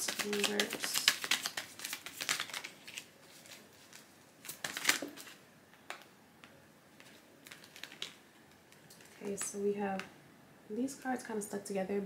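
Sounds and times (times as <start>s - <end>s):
cards being shuffled: 0.0s - 6.1s, 7.0s - 8.2s.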